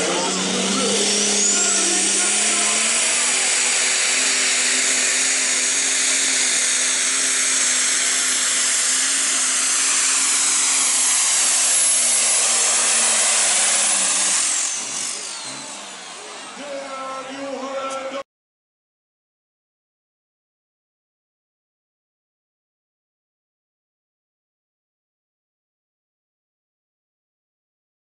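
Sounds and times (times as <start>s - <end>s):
loud high whine: 0.0s - 18.2s.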